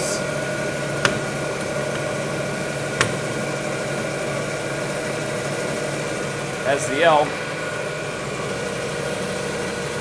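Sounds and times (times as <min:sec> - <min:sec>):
band saw humming: 0:00.0 - 0:10.0.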